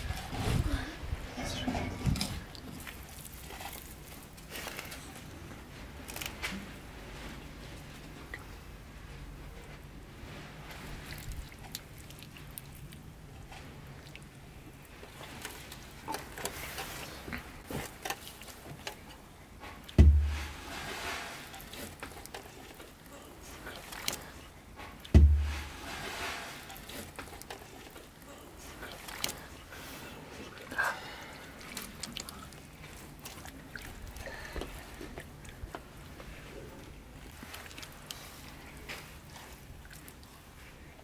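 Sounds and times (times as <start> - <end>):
hands smearing wet marinade: 19.8 - 22.9, 25.0 - 28.0
dull thumps: 20.0 - 20.8, 25.1 - 25.9.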